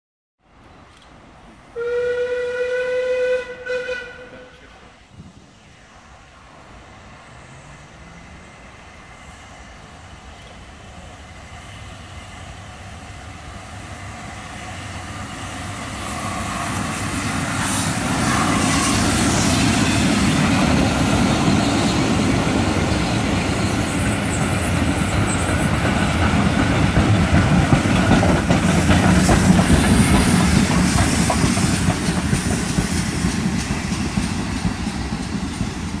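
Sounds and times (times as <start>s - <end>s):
train passing: 0.4s - 36.0s.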